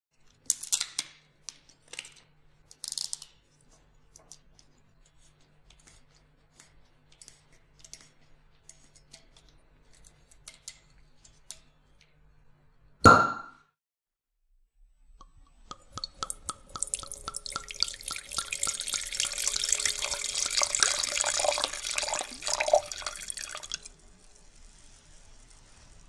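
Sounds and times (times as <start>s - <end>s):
wine glass clinking: 13.1s - 13.6s.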